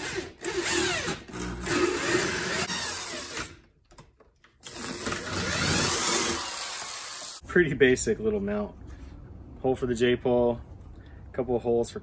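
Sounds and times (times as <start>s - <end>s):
electric drill boring into wood: 4.6s - 7.4s.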